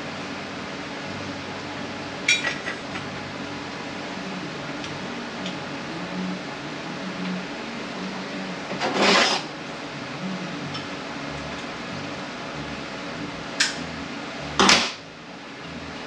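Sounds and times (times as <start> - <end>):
low shop hum: 0.0 - 16.0.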